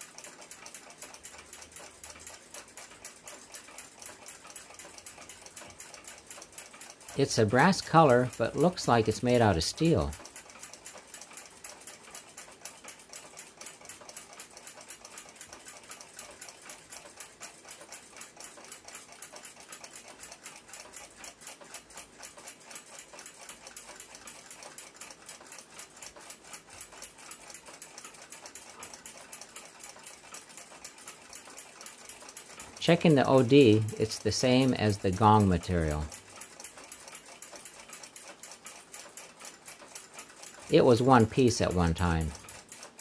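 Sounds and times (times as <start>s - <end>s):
clock ticking: 0.0s - 43.0s.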